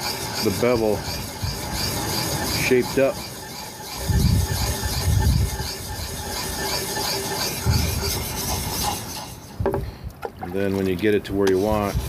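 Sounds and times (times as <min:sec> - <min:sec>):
sharpening puck scraping blade: 0:00.0 - 0:09.6.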